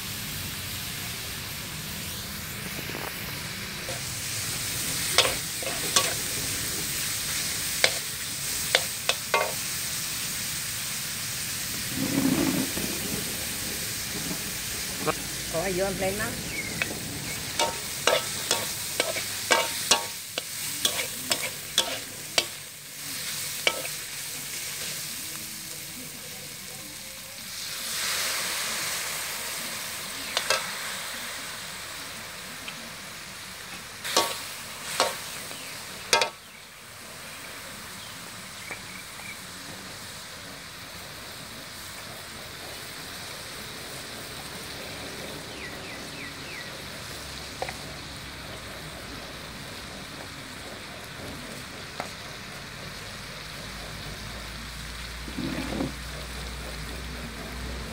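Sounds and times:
meat sizzling in a wok: 0:00.0 - 0:57.9
metal spatula scraping a wok: 0:03.8 - 0:10.0, 0:11.9 - 0:12.8, 0:16.8 - 0:25.0, 0:34.0 - 0:36.4, 0:55.0 - 0:57.5.

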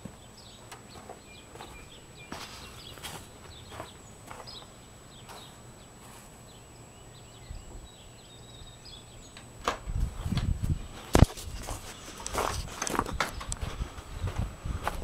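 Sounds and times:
footsteps: 0:00.0 - 0:06.4, 0:10.0 - 0:15.0.

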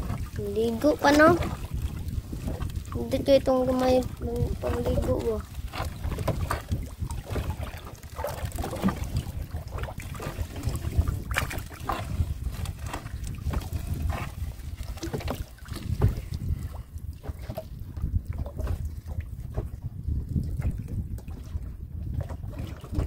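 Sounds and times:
water sounds: 0:00.0 - 0:23.0
wind rumbling on microphone: 0:00.0 - 0:23.0
knocks on boat: 0:05.8 - 0:07.6.

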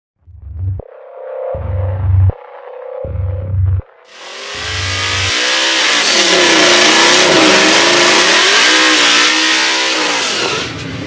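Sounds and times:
car engine revving: 0:03.0 - 0:11.0
spinning tyres hissing: 0:04.1 - 0:11.0.

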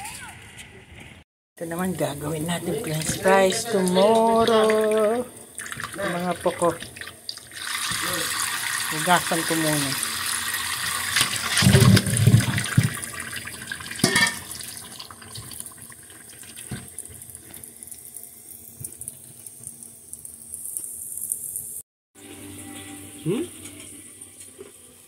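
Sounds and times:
tap water splashing in sink: 0:04.4 - 0:08.2, 0:10.9 - 0:17.6
knocks in steel bowl: 0:14.0 - 0:14.5.

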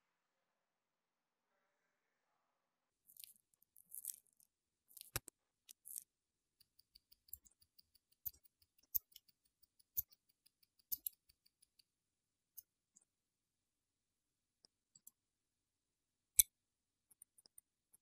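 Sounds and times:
watch tools clicking: 0:04.9 - 0:11.9
tweezers tapping: 0:06.6 - 0:11.8.

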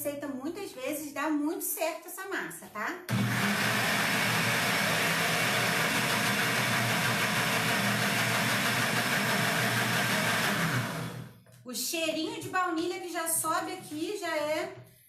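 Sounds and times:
blender running: 0:03.1 - 0:11.4.

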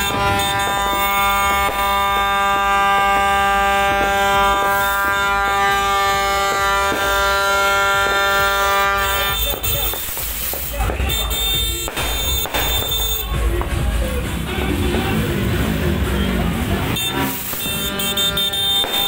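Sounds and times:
buzzy horn-like note: 0:00.0 - 0:10.1, 0:16.9 - 0:19.0
fireworks crackling pops: 0:00.0 - 0:13.9, 0:17.0 - 0:19.0.

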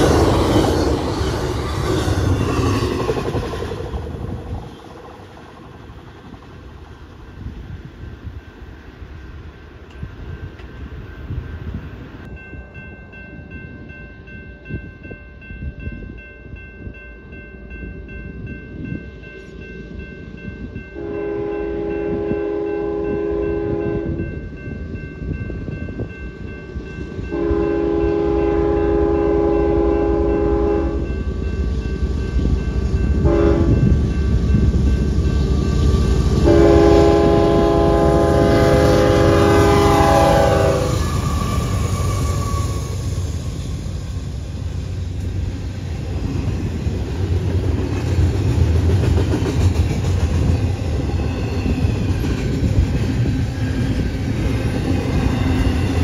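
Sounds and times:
train wheel clatter: 0:00.0 - 0:08.8, 0:38.6 - 0:56.0
train rumble: 0:00.0 - 0:56.0
locomotive air horn blasts: 0:21.0 - 0:24.2, 0:27.3 - 0:31.1, 0:33.2 - 0:33.9, 0:36.4 - 0:43.0.

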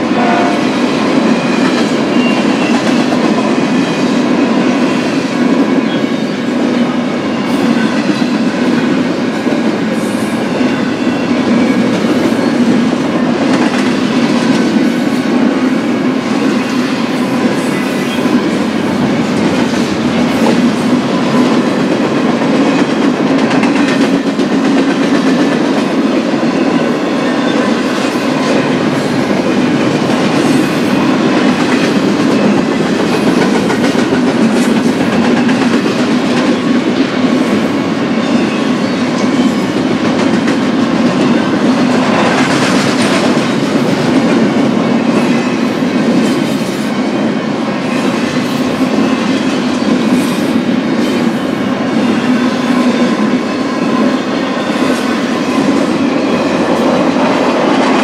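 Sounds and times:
freight train rumbling past: 0:00.0 - 0:58.0.

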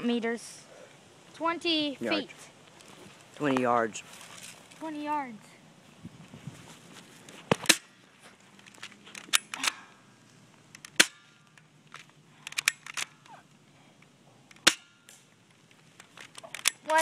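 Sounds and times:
airsoft rifle shots: 0:07.6 - 0:08.0, 0:10.8 - 0:11.6, 0:14.6 - 0:15.2.

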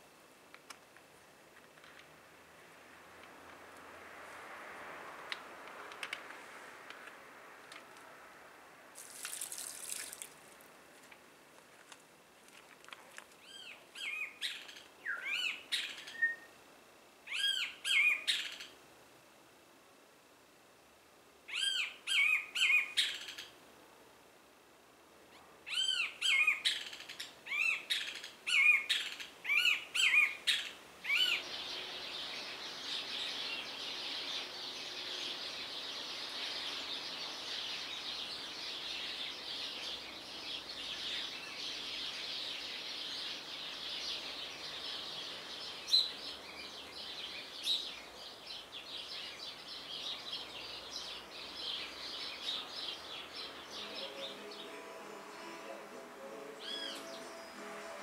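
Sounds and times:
dawn chorus of birds chirping: 0:13.4 - 0:16.6, 0:17.3 - 0:18.8, 0:21.4 - 0:23.6, 0:25.2 - 0:58.0.

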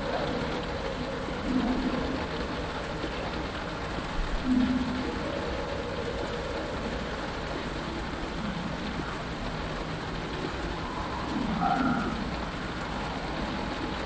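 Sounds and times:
rain on a canopy: 0:00.0 - 0:14.0
low animal-like call: 0:04.4 - 0:07.3, 0:10.4 - 0:13.2.

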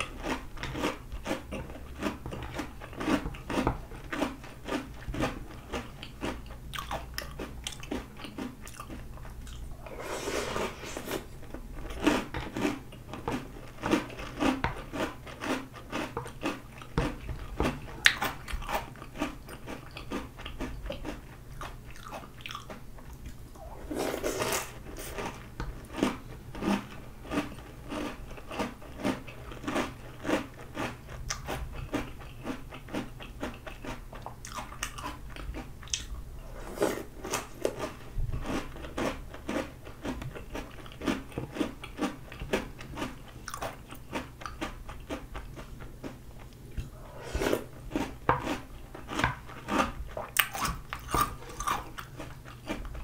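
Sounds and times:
crunchy cereal chewing: 0:00.0 - 0:53.0
slurping: 0:09.4 - 0:12.2, 0:23.6 - 0:25.4, 0:46.8 - 0:48.1.

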